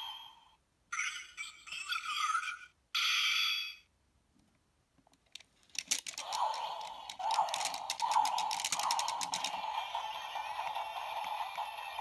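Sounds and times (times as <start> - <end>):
toy clicks: 5.2 - 12.0.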